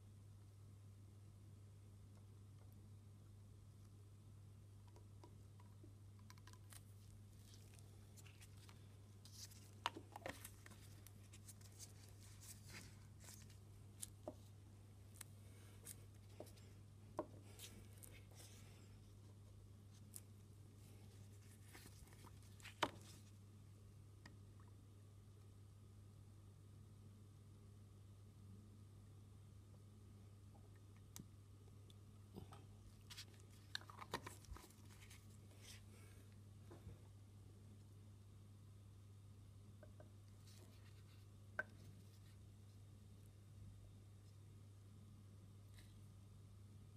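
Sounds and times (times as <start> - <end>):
steady low hum: 0.0 - 46.9
plastic cap clicking and scraping: 4.9 - 6.8, 9.6 - 11.1
gloved fingers rustling: 6.7 - 23.4.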